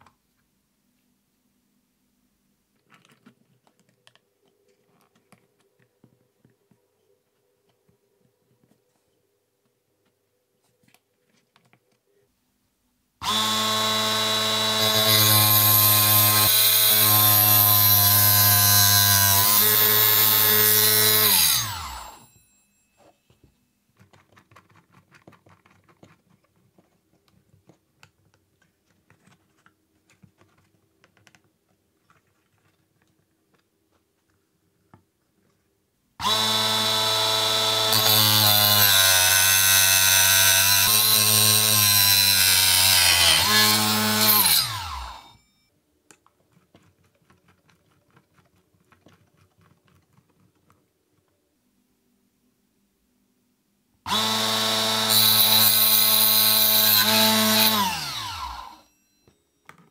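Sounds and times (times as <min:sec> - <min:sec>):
chop saw motor whine: 0:13.2 - 0:22.3, 0:36.2 - 0:45.4, 0:54.1 - 0:58.9
saw blade cutting metal rod: 0:40.8 - 0:45.3.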